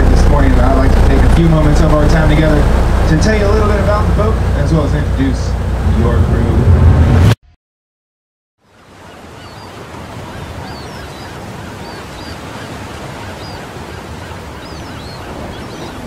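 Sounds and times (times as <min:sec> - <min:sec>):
sea water rushing: 0:00.0 - 0:07.0, 0:08.7 - 0:16.0
wind: 0:00.0 - 0:07.4, 0:08.6 - 0:16.0
high bird calls: 0:08.6 - 0:16.0.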